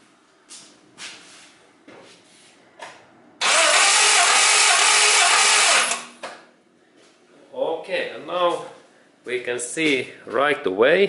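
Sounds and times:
car engine cranking by starter: 0:03.4 - 0:06.2.

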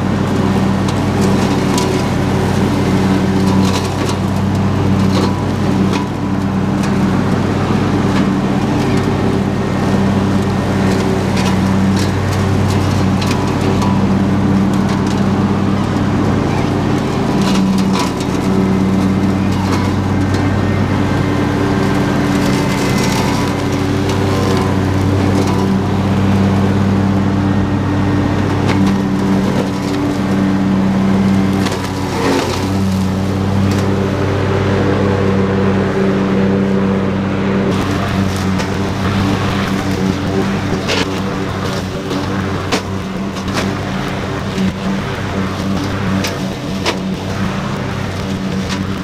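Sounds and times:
lawn tractor engine running: 0:00.0 - 0:49.0
stems and sticks snapping on blades: 0:37.7 - 0:43.8.

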